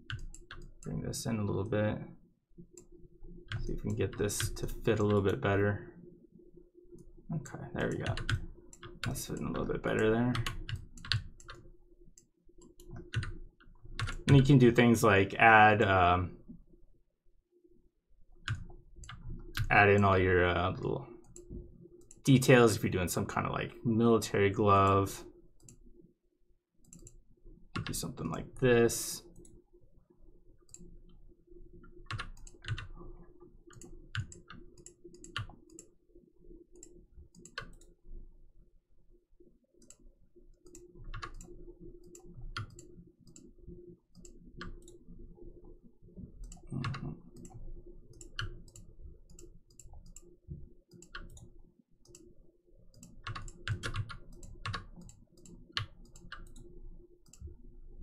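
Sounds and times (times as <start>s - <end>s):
computer mouse clicks: 0.0s - 1.0s, 25.6s - 25.9s, 26.8s - 27.2s, 30.6s - 31.2s, 31.8s - 32.9s, 33.7s - 35.9s, 36.7s - 38.0s, 39.8s - 43.5s, 44.1s - 45.0s, 46.4s - 50.3s, 50.9s - 52.3s, 52.9s - 57.6s
faint steady hum: 0.0s - 58.0s.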